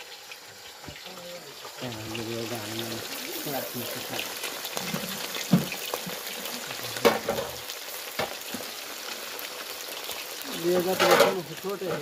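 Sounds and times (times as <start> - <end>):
food sizzling in hot oil: 0.0 - 12.0.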